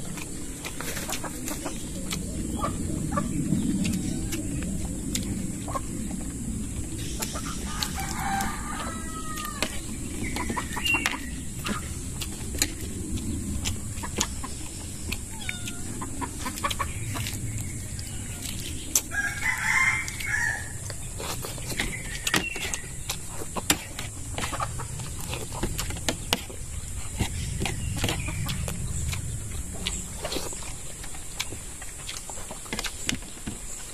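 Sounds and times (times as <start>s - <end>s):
chickens clucking: 0.0s - 33.9s
rooster crowing: 7.5s - 9.9s, 18.0s - 20.9s.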